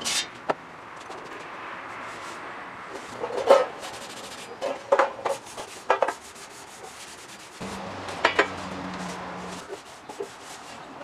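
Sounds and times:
cloth rag rubbing on sheet metal: 0:05.2 - 0:11.0.

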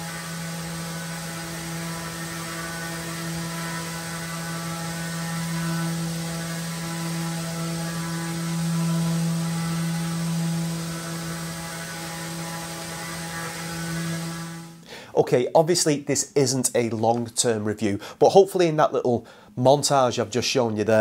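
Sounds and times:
orbital sander motor hum: 0:00.0 - 0:14.8.

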